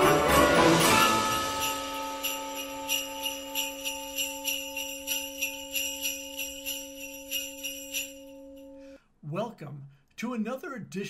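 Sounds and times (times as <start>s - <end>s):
sleigh bells shaken: 0.0s - 8.8s
held musical note: 0.0s - 9.0s.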